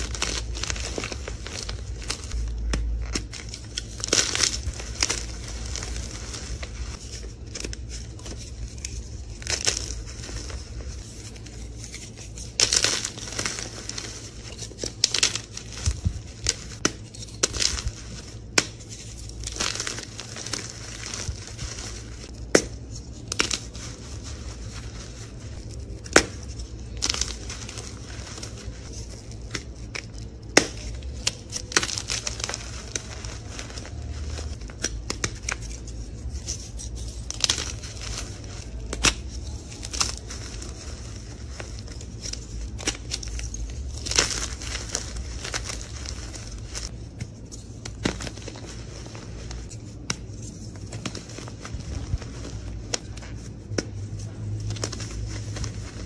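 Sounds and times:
chalk crumbling rustle: 0.0s - 56.0s.

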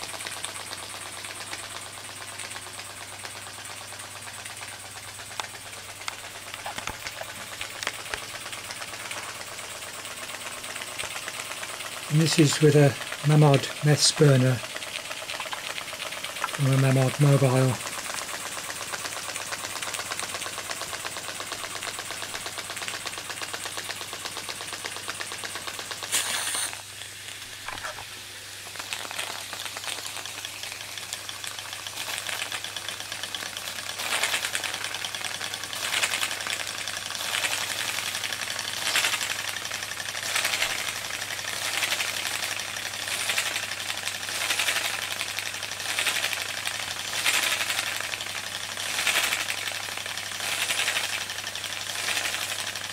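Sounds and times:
toy steam engine chuffing: 0.0s - 52.9s
steam hissing: 25.0s - 52.9s.

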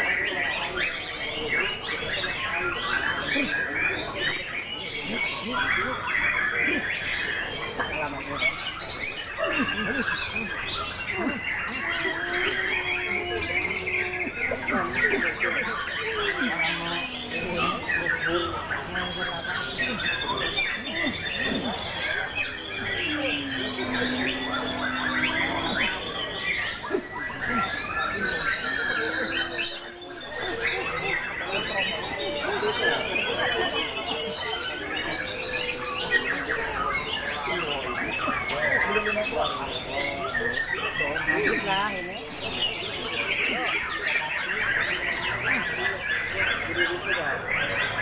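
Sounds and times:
songbirds singing: 0.0s - 48.0s.

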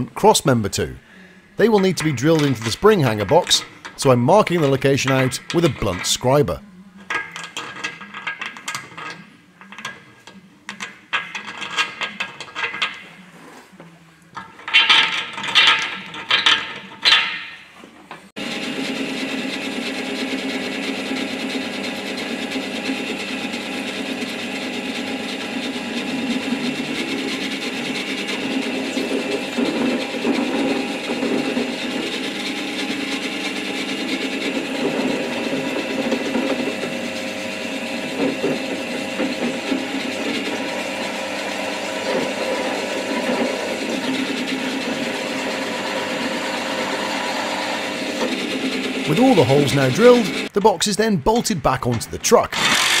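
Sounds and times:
scriber scratching on steel: 10.7s - 13.8s, 22.2s - 51.1s
power drill boring through steel: 18.4s - 50.5s, 52.5s - 53.0s.

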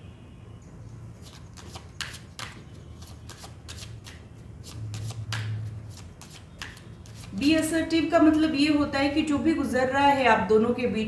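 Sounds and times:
cards being shuffled: 1.2s - 7.4s.

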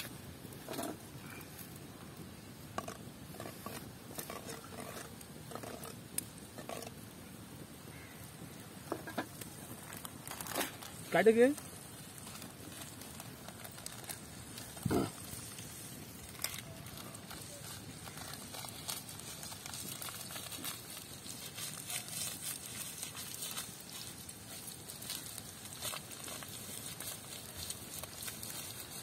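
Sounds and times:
seeds popping in hot oil: 2.3s - 29.0s.

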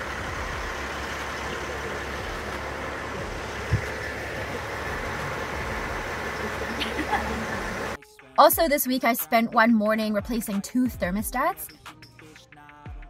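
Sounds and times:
diesel engine idling: 0.0s - 8.0s
short low thump: 3.2s - 4.1s.

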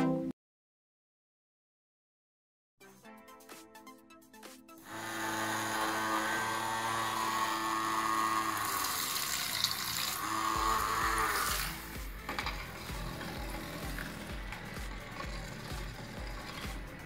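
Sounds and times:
small motor whining: 4.8s - 17.0s
propeller splashing water: 8.4s - 17.0s.

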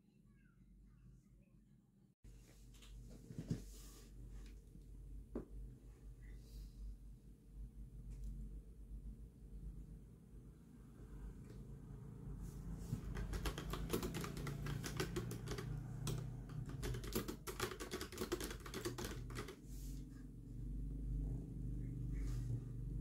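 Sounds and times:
low steady hum: 0.0s - 17.2s, 19.0s - 23.0s
fast keyboard typing: 13.0s - 19.6s.

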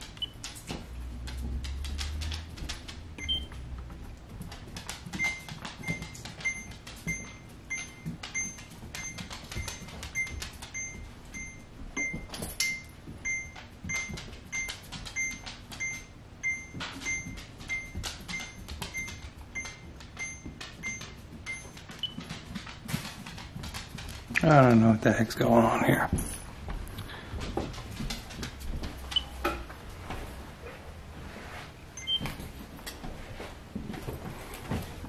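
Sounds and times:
rapid clicking and tapping: 0.0s - 7.0s.

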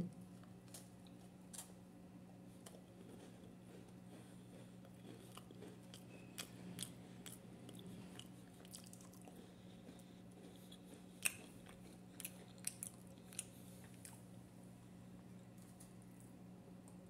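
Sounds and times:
steady low hum: 0.0s - 17.0s
person chewing biscuit: 2.5s - 14.4s.

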